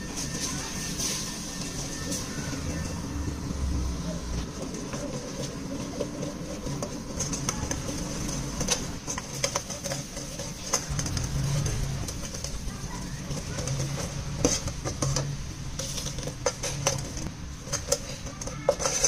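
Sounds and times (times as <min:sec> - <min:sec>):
liquid bubbling and sizzling in pot: 0:00.0 - 0:19.0
ladle scraping and knocking pot: 0:03.8 - 0:19.0.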